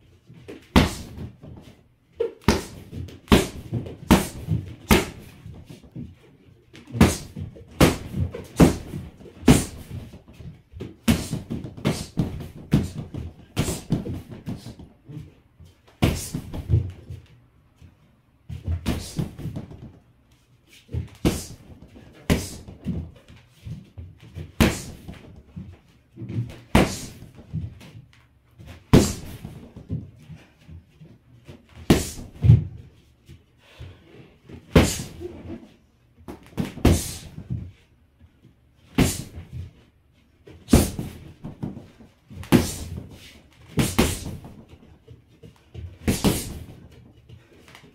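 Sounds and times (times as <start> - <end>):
punches on heavy bag: 0.7 - 1.4, 2.4 - 5.4, 7.0 - 10.0, 11.0 - 14.8, 16.0 - 16.7, 21.2 - 22.7, 24.6 - 25.2, 26.6 - 27.4, 28.9 - 29.6, 31.8 - 32.6, 34.7 - 35.2, 36.6 - 37.4, 38.9 - 39.5, 40.7 - 41.8, 42.4 - 43.1, 43.8 - 44.6, 46.0 - 46.8.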